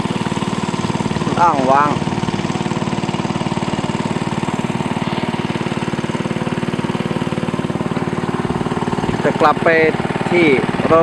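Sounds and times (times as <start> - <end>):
motorboat engine running: 0.0 - 11.0.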